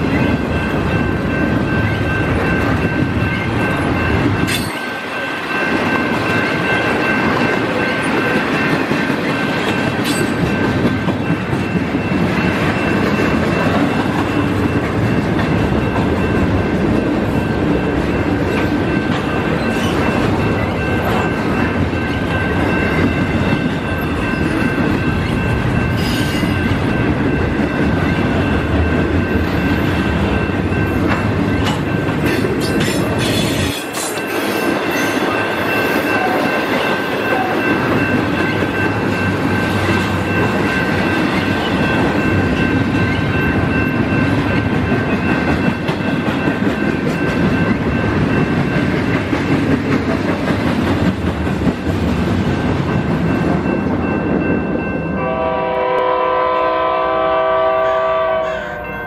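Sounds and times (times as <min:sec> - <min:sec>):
freight train wheels rumbling: 0:00.0 - 0:59.0
clickety-clack over rail joints: 0:05.7 - 0:54.8
high-pitched ringing tone: 0:17.3 - 0:32.1.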